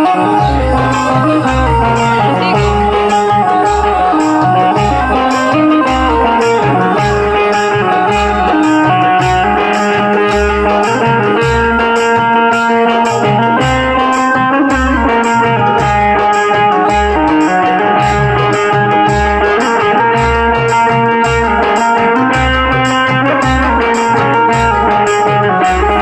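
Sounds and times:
banjo melody: 0:00.0 - 0:26.0
drum beat: 0:00.0 - 0:26.0
harmonium: 0:00.0 - 0:26.0.

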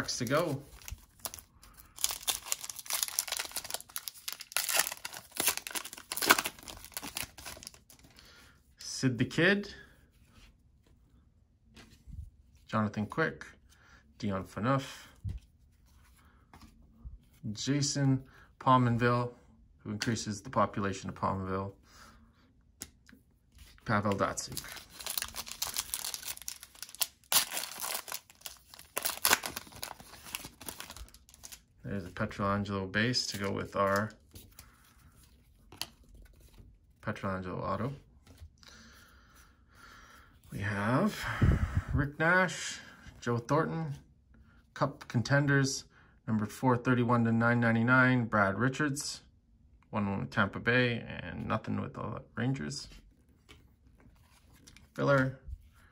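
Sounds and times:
foil wrapper tearing and crinkling: 0:00.8 - 0:07.9, 0:24.5 - 0:31.6.

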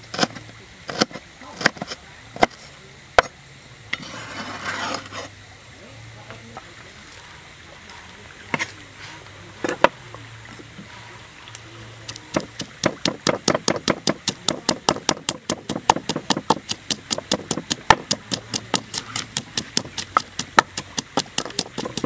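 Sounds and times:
blade scraping cutting board: 0:00.0 - 0:02.0, 0:03.9 - 0:05.3
cleaver chopping on wooden board: 0:12.1 - 0:22.0.

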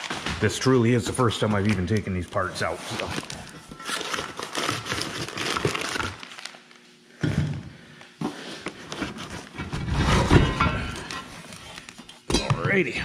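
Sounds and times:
packing material crinkling: 0:01.2 - 0:06.9.

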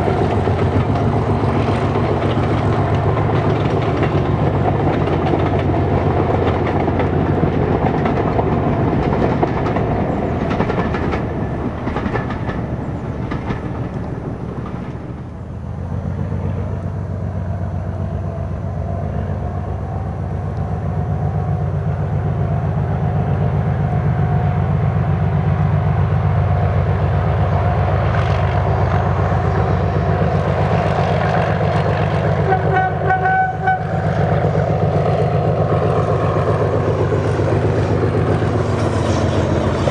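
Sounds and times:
train wheels clicking over rail joints: 0:00.0 - 0:18.1, 0:20.4 - 0:39.9
diesel locomotive engine humming: 0:00.0 - 0:39.9
train horn: 0:32.2 - 0:34.4.

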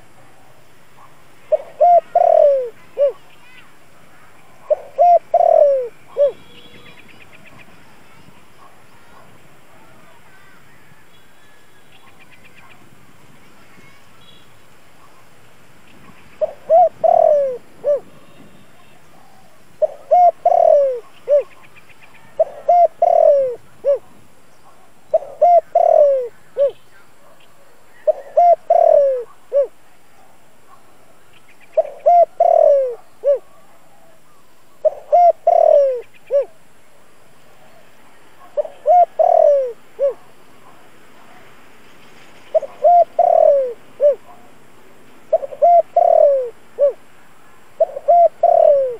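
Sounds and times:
dove cooing: 0:01.4 - 0:03.6, 0:04.2 - 0:07.7, 0:16.4 - 0:29.8, 0:31.8 - 0:36.6, 0:37.7 - 0:41.4, 0:42.4 - 0:44.5, 0:45.3 - 0:47.1, 0:47.8 - 0:48.9.

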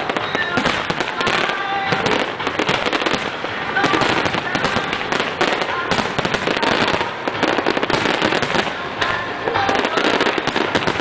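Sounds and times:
fireworks bangs and crackles: 0:00.0 - 0:11.0.

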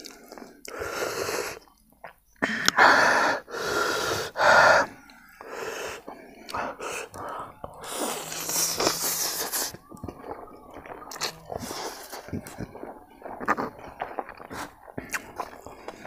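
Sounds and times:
slurping noodles: 0:00.0 - 0:01.7, 0:02.7 - 0:16.0
man gasping and blowing breaths: 0:02.4 - 0:09.7.

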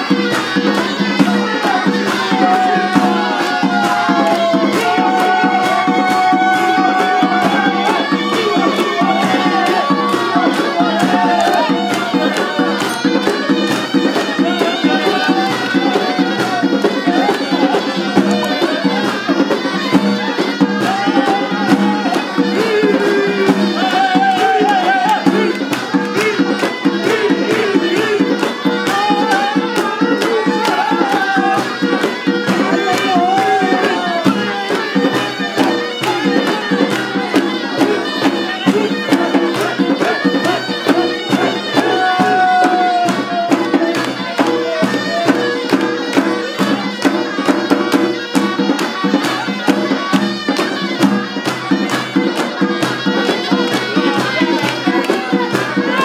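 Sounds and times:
shrill double-reed pipes: 0:00.0 - 0:56.0
stick-beaten drum: 0:00.0 - 0:56.0.

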